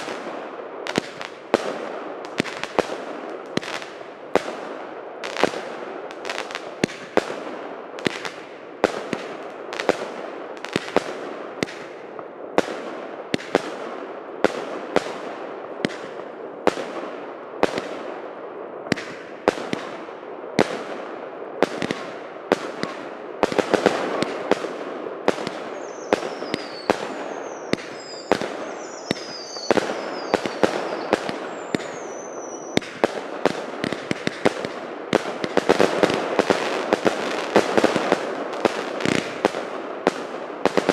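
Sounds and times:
firework bangs with crackling hiss: 0:00.0 - 0:18.1, 0:18.9 - 0:40.9
falling firework whistles: 0:25.7 - 0:33.1.

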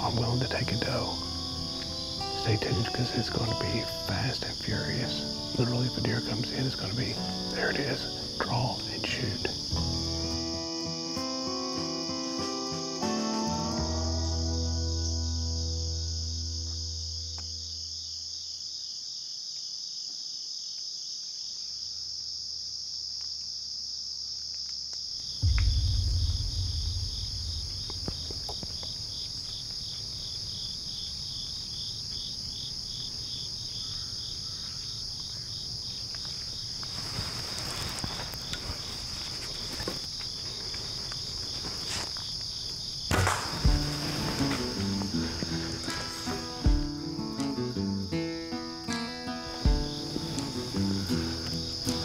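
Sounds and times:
insect trill pulsing rapidly: 0:00.0 - 0:18.4, 0:25.2 - 0:52.0
crickets and insects chorus: 0:00.0 - 0:52.0
low rumble: 0:25.4 - 0:29.5.

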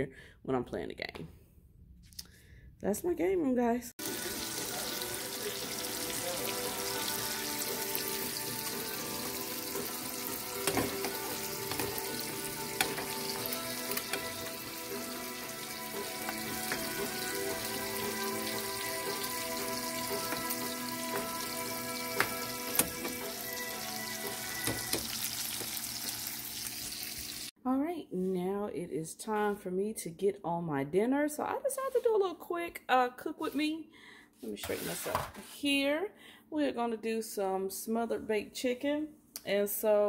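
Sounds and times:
soft background music: 0:04.0 - 0:26.2
bacon sizzling and crackling: 0:04.0 - 0:27.5.

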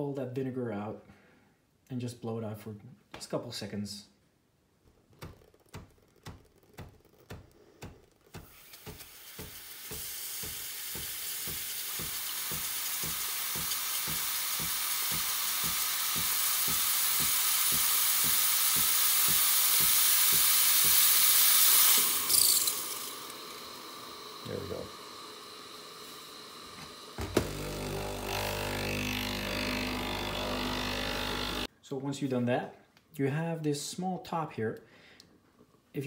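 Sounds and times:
pump pulsing: 0:08.3 - 0:31.7
steam hiss: 0:08.4 - 0:28.2.

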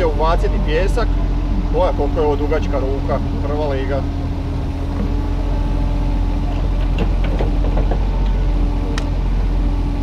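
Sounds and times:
excavator diesel engine running: 0:00.0 - 0:10.0
light clicks and knocks: 0:06.5 - 0:09.1.

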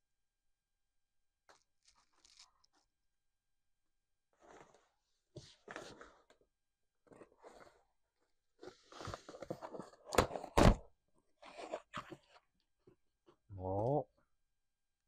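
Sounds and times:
cardboard scraping and rustling: 0:08.6 - 0:10.8, 0:11.4 - 0:12.5.

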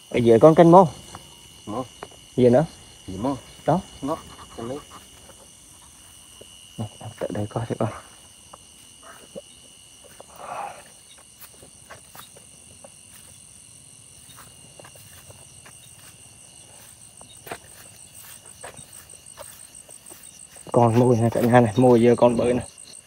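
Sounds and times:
crickets trilling: 0:00.0 - 0:23.0
footsteps through dry grass: 0:08.1 - 0:22.8.

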